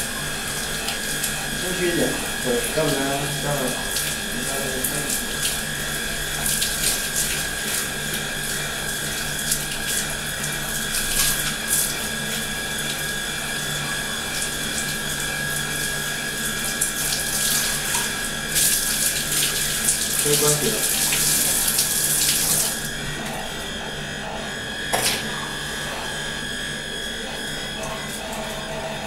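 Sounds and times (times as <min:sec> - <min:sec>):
water splashing into bathtub: 0:00.4 - 0:07.9, 0:16.6 - 0:22.9
shower water spraying on hair: 0:00.4 - 0:22.9.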